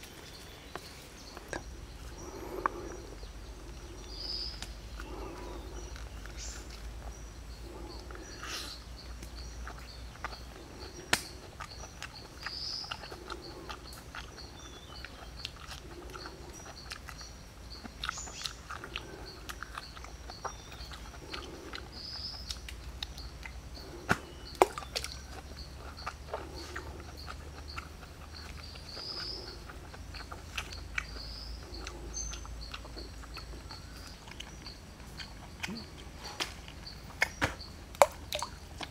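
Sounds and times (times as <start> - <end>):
bird chirps: 0.0 - 38.9
fruit being pulled apart snapping: 11.1 - 11.8, 22.5 - 25.2, 35.6 - 38.9.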